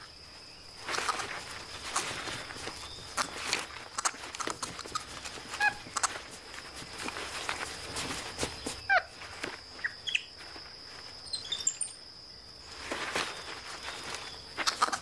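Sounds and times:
high insect whine: 0.0 - 15.0
twigs snapping and rustling: 0.8 - 9.9
bird chirps: 9.8 - 10.3, 11.2 - 12.0.

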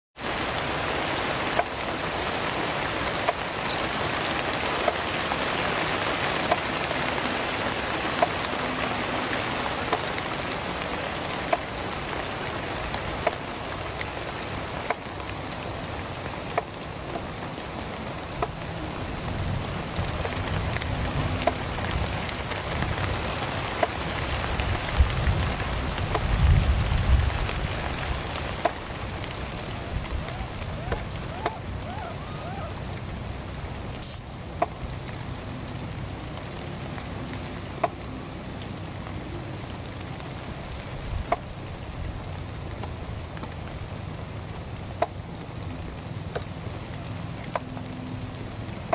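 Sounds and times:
heavy rain falling: 0.2 - 48.9
sharp drip ticks: 3.1 - 3.9, 4.5 - 5.2, 6.4 - 6.8, 11.4 - 12.0, 20.0 - 25.4.

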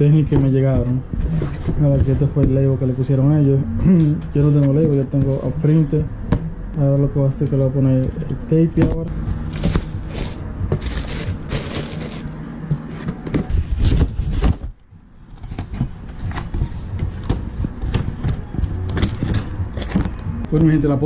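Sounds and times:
cardboard boxes scraping and knocking: 0.0 - 5.9, 8.8 - 20.3
tissue paper rustling: 9.5 - 14.6.

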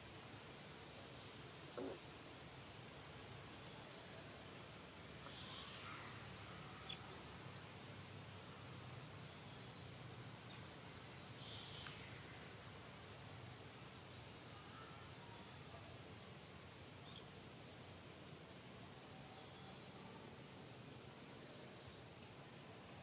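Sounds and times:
high-pitched insect drone: 5.1 - 10.7.

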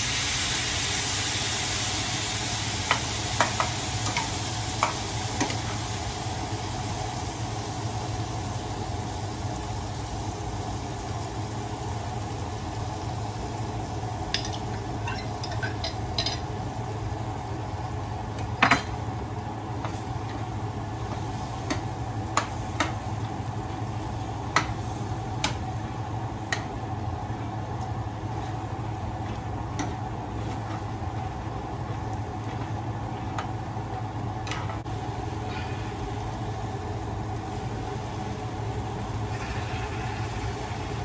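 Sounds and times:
steady low hum: 0.0 - 41.0
metal spoon clinking on glass and pan: 14.4 - 16.4.

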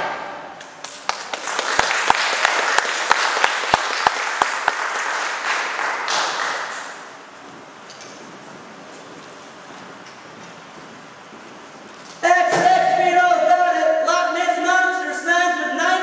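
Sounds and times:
loud close hand claps: 0.6 - 7.2
audience applauding: 0.6 - 7.3.

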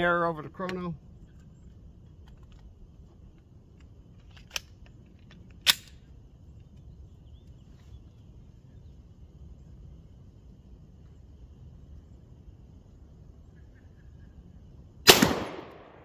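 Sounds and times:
pistol handling clicks: 3.3 - 6.1.

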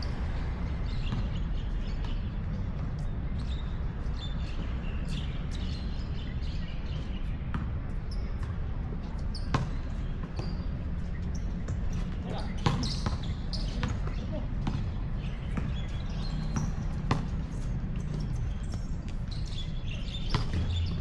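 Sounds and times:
basketball bouncing: 9.5 - 10.6, 11.6 - 18.9, 20.2 - 21.0.

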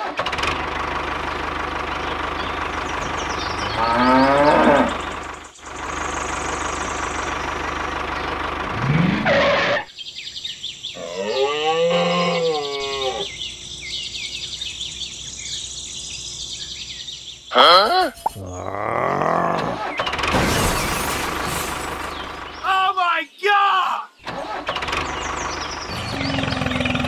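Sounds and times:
steady engine noise: 0.0 - 9.9, 24.3 - 27.0
small birds chirping: 1.2 - 9.0, 9.8 - 27.0
cow mooing: 3.6 - 5.0, 11.0 - 13.3.

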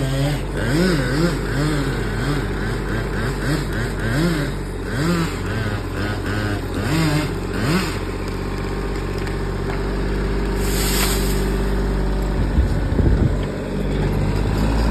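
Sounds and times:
tractor diesel engine running: 0.0 - 14.9
tree crashing to ground: 10.4 - 11.8.

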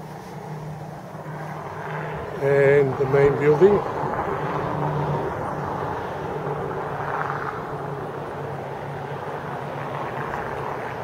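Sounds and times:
engine drone: 0.0 - 11.0.

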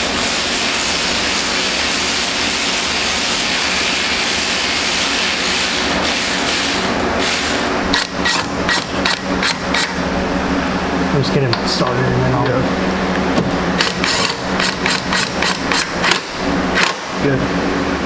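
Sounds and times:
hand tools clicking on metal: 13.8 - 16.2.

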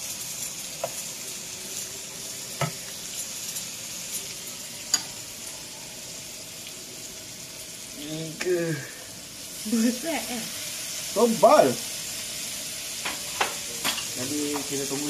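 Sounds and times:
steaks sizzling in a pan: 0.0 - 15.0.

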